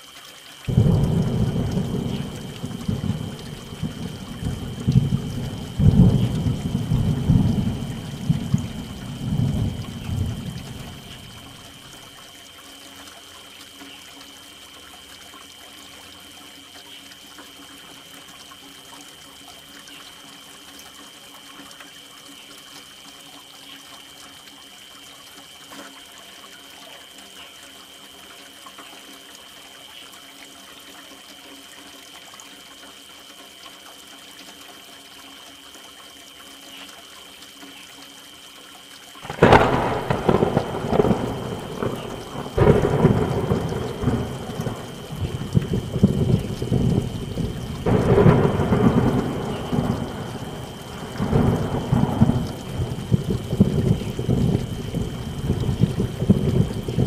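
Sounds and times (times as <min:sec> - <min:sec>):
soft steady rain: 0:00.0 - 0:57.0
loud thunderclap rumbling: 0:00.7 - 0:11.8, 0:39.2 - 0:57.0.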